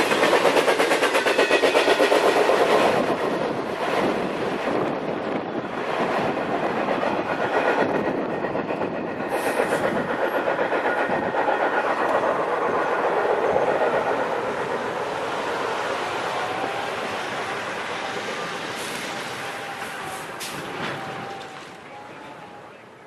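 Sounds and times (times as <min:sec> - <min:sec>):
rhythmic clickety-clack: 0:00.0 - 0:04.2, 0:05.9 - 0:15.5
freight train wheels rumbling: 0:00.0 - 0:23.0.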